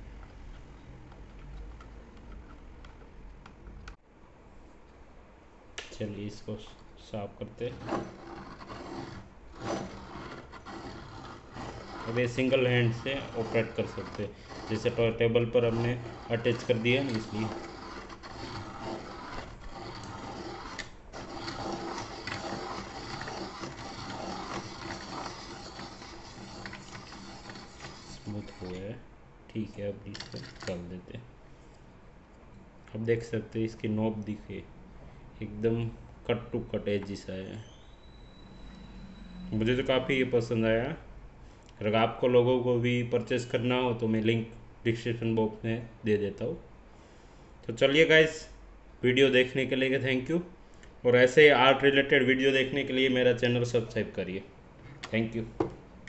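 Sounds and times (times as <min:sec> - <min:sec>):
pencil sharpener whirring: 0:07.7 - 0:28.8
low rumble: 0:38.2 - 0:40.0.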